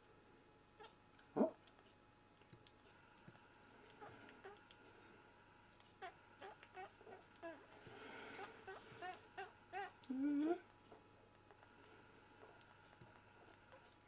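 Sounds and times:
squirrel squeaking: 4.0s - 4.7s, 5.8s - 10.0s.

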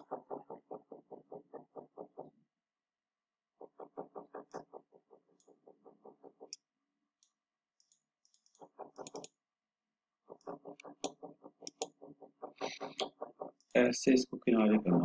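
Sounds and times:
scroll wheel ticking: 7.2s - 9.3s, 10.3s - 14.0s.

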